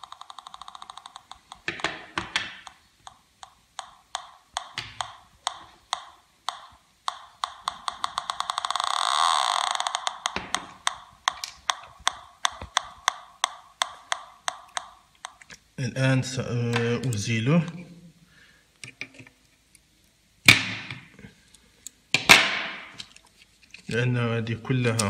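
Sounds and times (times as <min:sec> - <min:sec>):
metal detector ticking: 0:00.0 - 0:01.9, 0:02.6 - 0:15.6.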